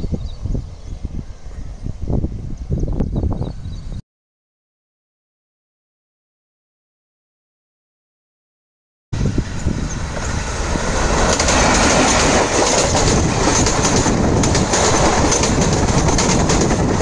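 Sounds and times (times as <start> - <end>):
train passing at speed: 9.2 - 17.0
wheels clicking over rail joints: 9.8 - 17.0.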